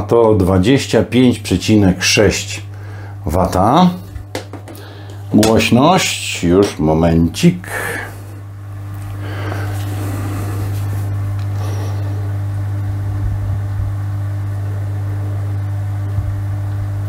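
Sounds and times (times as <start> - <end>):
pump motor humming: 7.7 - 17.0.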